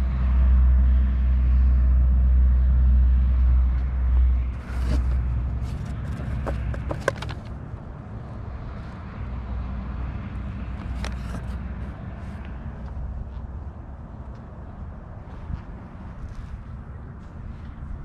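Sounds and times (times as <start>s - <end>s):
items being handled: 4.6s - 7.5s, 10.8s - 11.6s.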